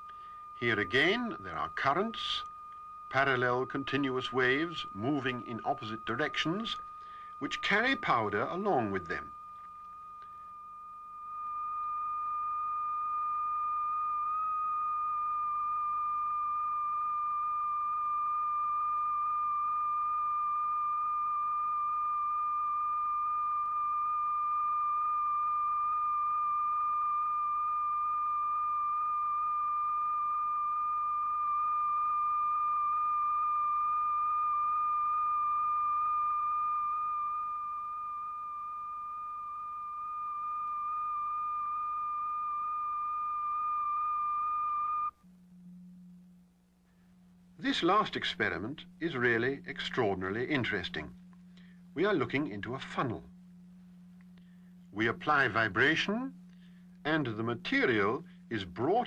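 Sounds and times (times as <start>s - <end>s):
high electronic tone: 0.0s - 45.2s.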